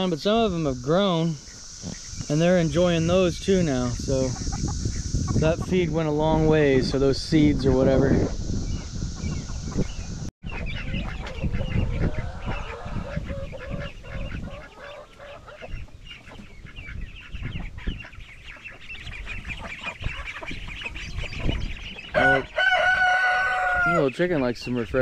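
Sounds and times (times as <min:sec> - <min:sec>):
chickens clucking: 0:00.0 - 0:25.0
rooster crowing: 0:22.1 - 0:24.0.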